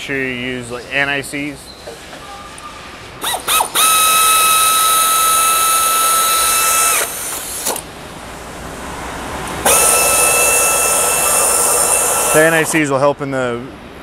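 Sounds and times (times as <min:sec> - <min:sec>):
power tool whining: 0:03.2 - 0:07.8, 0:09.6 - 0:12.8.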